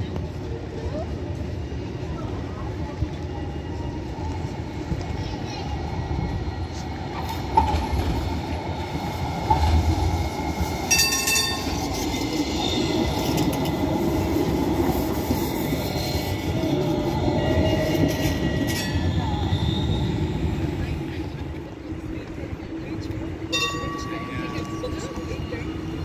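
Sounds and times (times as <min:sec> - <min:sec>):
tram rumbling past: 0:00.0 - 0:26.0.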